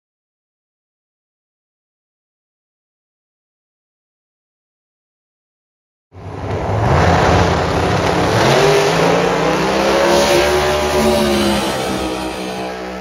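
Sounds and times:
drag racing cars accelerating: 6.2 - 13.0.

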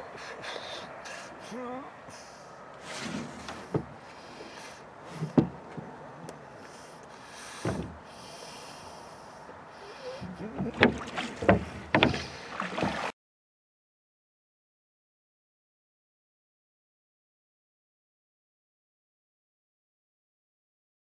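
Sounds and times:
oars knocking in oarlocks: 5.1 - 6.0, 7.5 - 8.0, 10.0 - 13.1.

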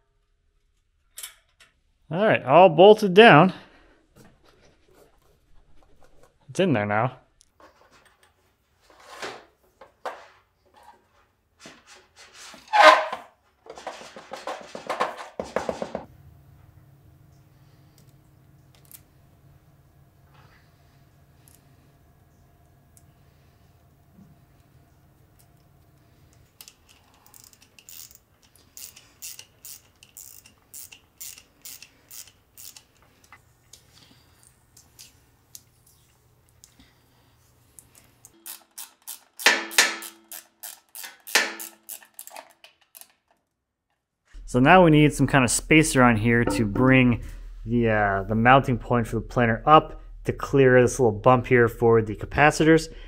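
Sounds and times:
cord rubbing against metal: 12.2 - 13.3
socket ratchet clicking: 26.6 - 33.0, 38.3 - 43.1.

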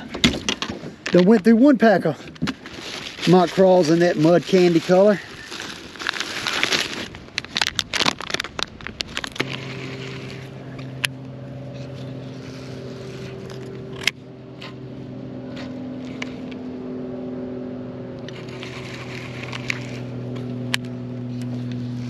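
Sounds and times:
plastic package crinkling: 2.6 - 11.0, 18.3 - 20.4
motor hum: 9.3 - 22.0.

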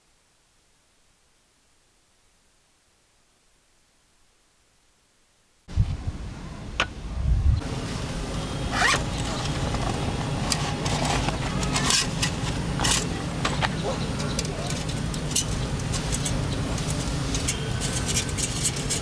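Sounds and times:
zipper being pulled: 8.7 - 9.4
scraping and rustling handling: 8.7 - 19.0.

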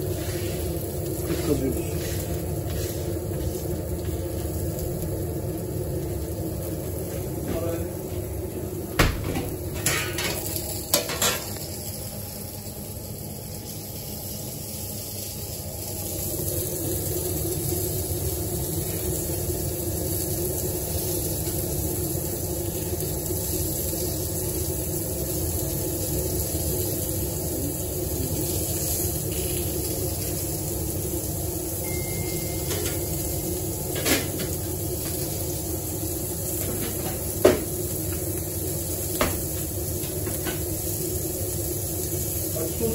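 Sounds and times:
meat sizzling on a grill: 0.0 - 42.9
steady hum: 30.0 - 36.4.

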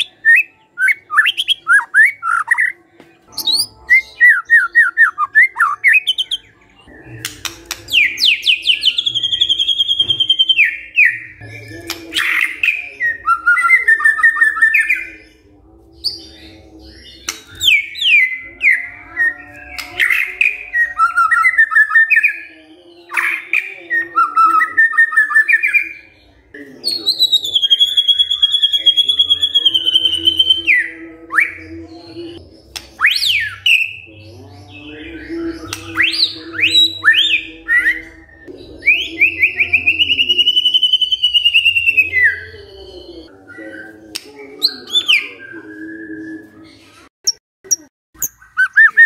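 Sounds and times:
bird singing whistled notes: 0.0 - 15.4, 34.7 - 46.6, 48.2 - 49.0.

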